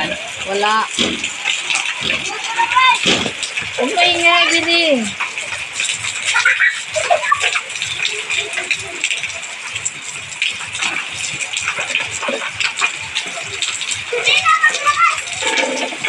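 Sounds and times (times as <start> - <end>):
heavy rain on concrete: 0.0 - 16.0
water streaming off roof: 0.0 - 16.0
children's voices: 1.9 - 5.2, 6.2 - 9.6, 12.9 - 16.0.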